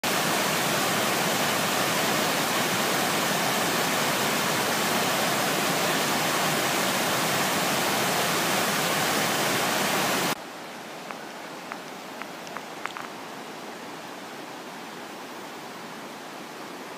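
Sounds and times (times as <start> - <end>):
distant river rush: 0.0 - 16.9
water rushing over rocks: 0.0 - 16.9
faint ticks: 11.1 - 13.2.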